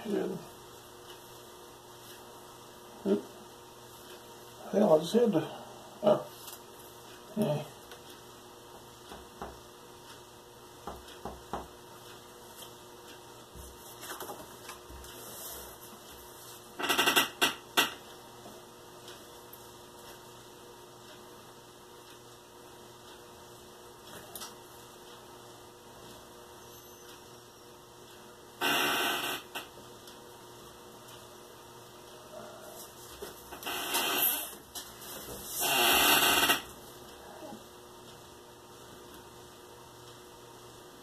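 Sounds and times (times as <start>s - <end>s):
faint electrical hum: 0.0s - 41.0s
paper rustling on a desk: 13.6s - 15.6s.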